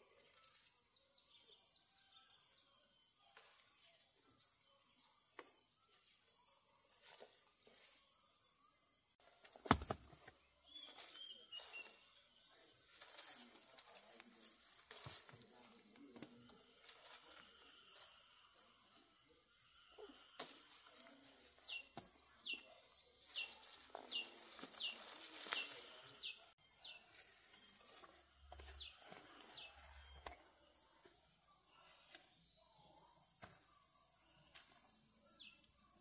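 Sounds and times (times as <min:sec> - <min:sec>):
bird chirping: 0:10.2 - 0:12.9, 0:15.5 - 0:30.5.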